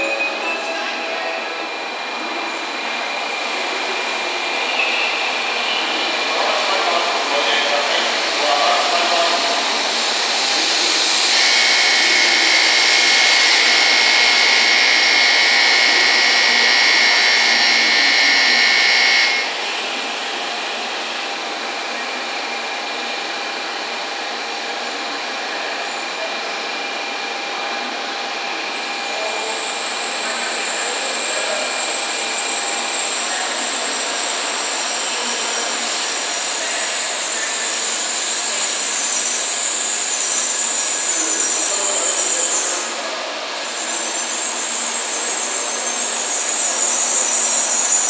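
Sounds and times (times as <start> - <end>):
steady high-pitched tone: 0.0 - 7.0, 7.6 - 20.1
crowd chattering: 0.0 - 29.6
train running into station: 0.0 - 48.0.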